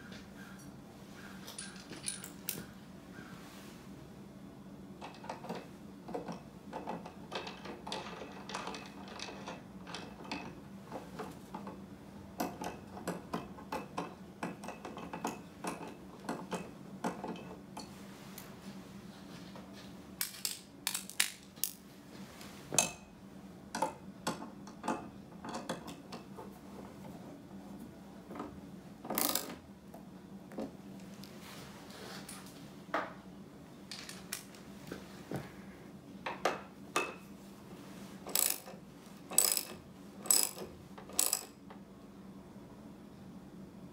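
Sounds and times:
faint steady hum: 0.0 - 43.9
metal hardware clinking: 1.4 - 2.7, 20.2 - 21.8, 38.3 - 41.6
ratchet wrench clicking: 29.2 - 29.5, 38.3 - 38.7, 39.3 - 41.6.

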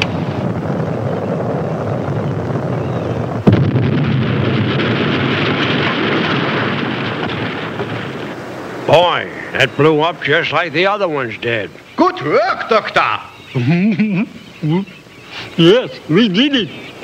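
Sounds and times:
loud explosion blast: 0.0 - 9.4.

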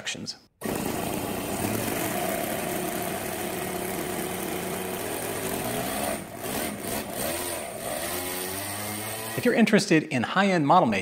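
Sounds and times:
model engine idling: 0.6 - 7.9.

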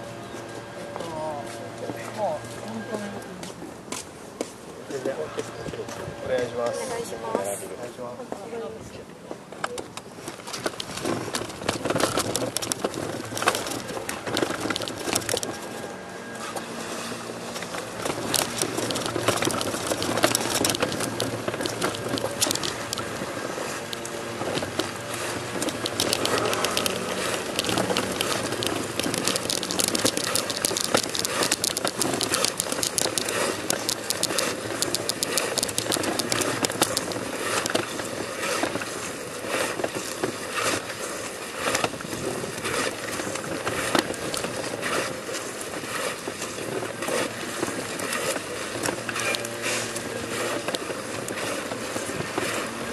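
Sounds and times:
person crawling on stone paving: 10.2 - 15.8, 17.3 - 40.9.

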